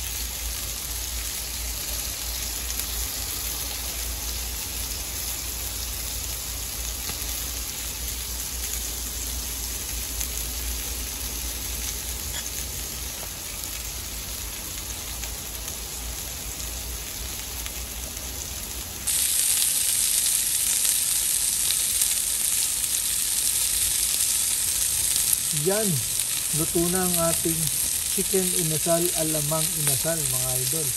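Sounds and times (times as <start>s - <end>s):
chicken sizzling on grill: 0.0s - 30.9s.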